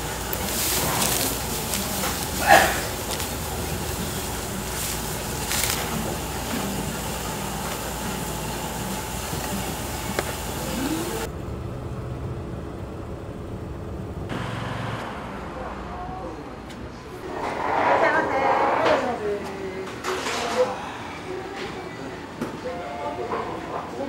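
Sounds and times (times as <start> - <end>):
kitchen hiss and hum: 0.0 - 11.3
street ambience rumble: 0.0 - 24.0.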